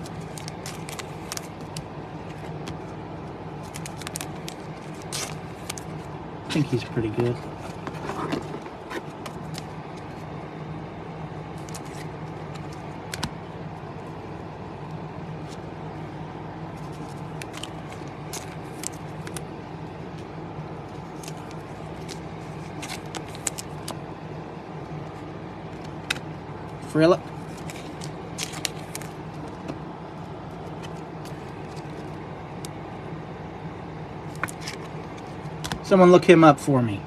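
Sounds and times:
low background hum: 0.0 - 37.0
cards clicking and tapping: 11.6 - 13.4, 16.8 - 19.5.

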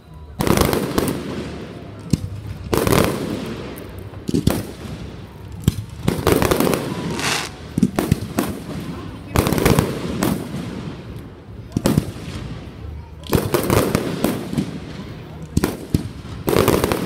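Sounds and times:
sharp firework cracks: 5.8 - 8.7
firework shells booming: 6.1 - 8.4.

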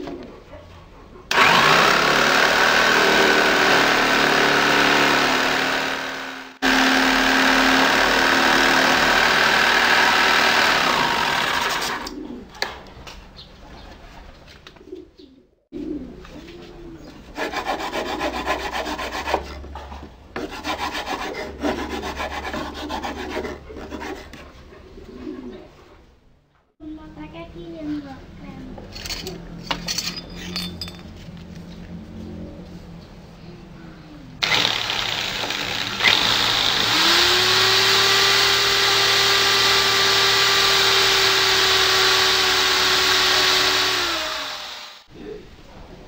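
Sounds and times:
power tool working wood: 1.3 - 12.1, 34.4 - 45.1.

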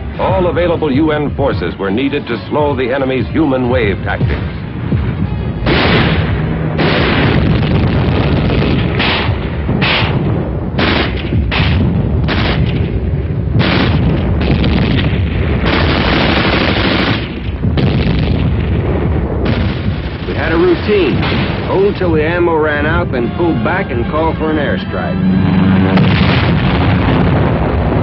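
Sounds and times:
explosions: 3.7 - 28.0
gunfire: 5.6 - 13.0, 13.6 - 22.2.

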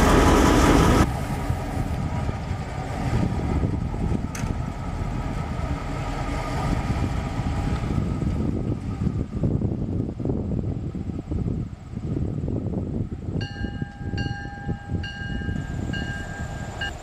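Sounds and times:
diesel locomotive engine rumbling: 0.0 - 17.0
thin steady whine: 13.4 - 17.0.

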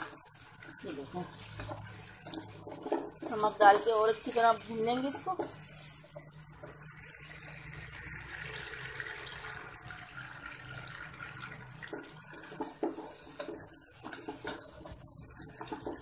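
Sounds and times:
wooden spatula scraping pot: 0.0 - 8.2, 11.4 - 16.0
meat sizzling in hot oil: 0.0 - 16.0.

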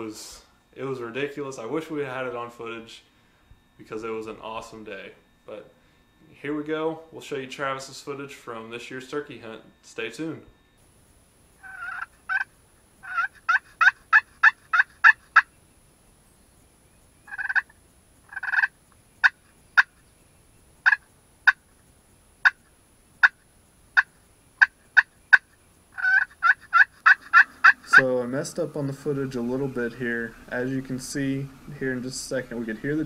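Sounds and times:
turkey yelps: 11.6 - 15.5, 17.3 - 17.7, 18.3 - 20.0, 20.8 - 21.6, 22.4 - 22.6, 24.0 - 28.2
turkey clucks: 11.6 - 15.6, 17.2 - 20.0, 20.8 - 21.7, 22.4 - 29.5
turkey drawn-out calls: 11.6 - 15.7, 17.1 - 21.8, 22.4 - 30.6.

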